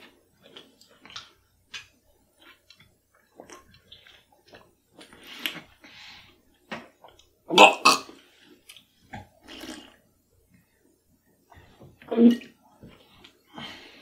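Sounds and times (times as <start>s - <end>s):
mouth chewing and slurping: 0.0s - 5.8s, 8.1s - 10.0s.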